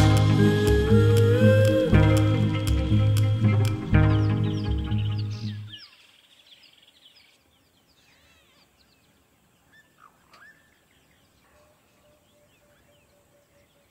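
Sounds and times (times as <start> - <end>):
faint birdsong chirps and whistles: 4.1 - 13.9.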